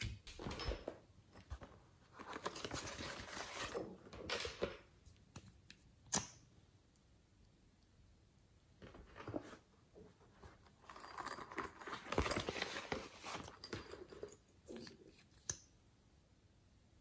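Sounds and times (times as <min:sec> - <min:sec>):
rustling and rubbing: 0:08.8 - 0:15.3.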